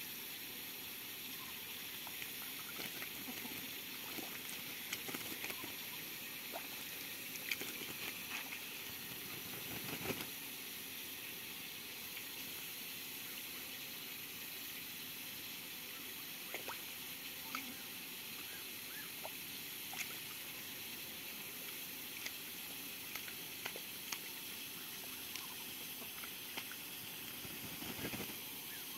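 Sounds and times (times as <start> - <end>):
background hiss: 0.0 - 28.9
duck splashing in water: 2.2 - 5.7.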